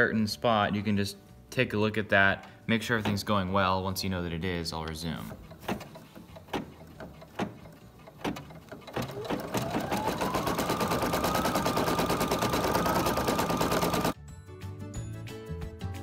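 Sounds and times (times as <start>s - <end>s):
embroidery machine stitching: 5.2s - 14.2s
embroidery machine clicks: 5.3s - 14.2s.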